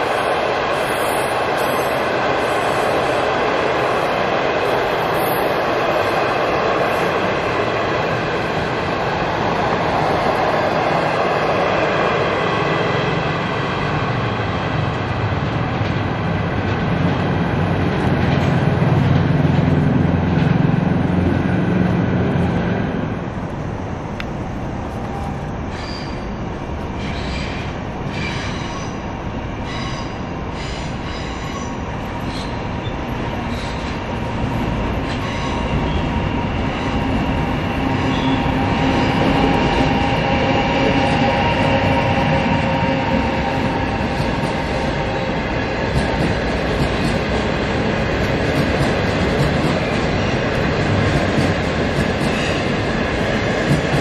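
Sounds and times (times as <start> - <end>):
train approaching: 0.0 - 54.0
train rolling on rails: 0.0 - 54.0
high wheel squeal: 25.7 - 26.3, 38.0 - 39.2.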